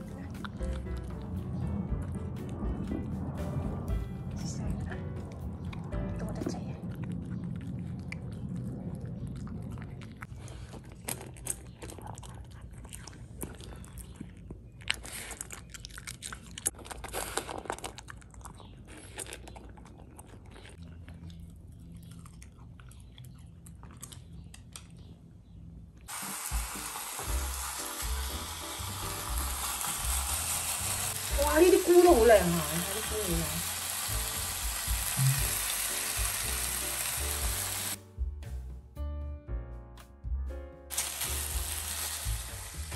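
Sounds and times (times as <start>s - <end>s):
background music: 0.0s - 7.3s, 26.1s - 42.9s
dog chewing dry kibble: 6.8s - 25.1s
meat sizzling in a pan: 26.1s - 38.0s, 40.9s - 42.9s.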